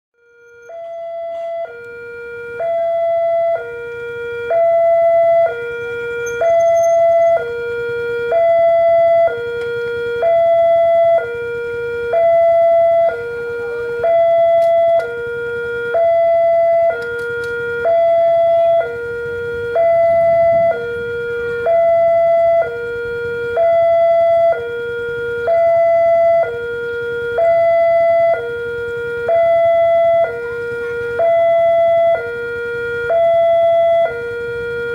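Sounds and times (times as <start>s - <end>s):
two-tone level crossing siren: 0.2s - 34.9s.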